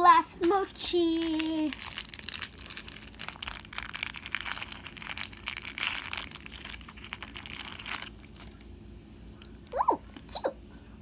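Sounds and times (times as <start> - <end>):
plastic packaging crinkling: 0.0 - 8.6.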